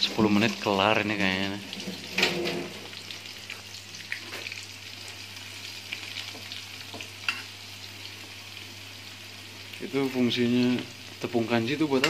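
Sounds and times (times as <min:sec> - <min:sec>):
fish sizzling in hot oil: 0:00.0 - 0:12.0.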